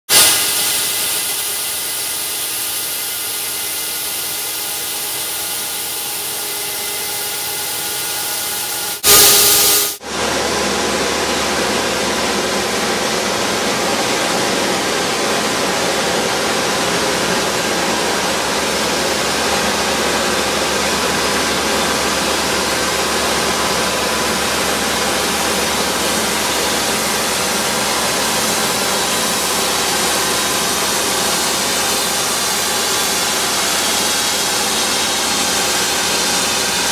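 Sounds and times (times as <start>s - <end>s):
fogger spraying hiss: 0.2s - 10.0s.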